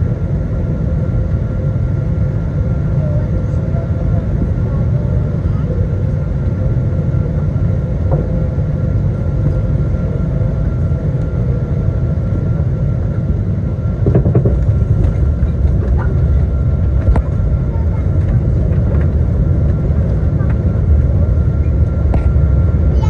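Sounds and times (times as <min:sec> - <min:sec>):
aircraft cabin rumble: 0:00.0 - 0:23.0
short rattles and knocks: 0:14.0 - 0:16.1.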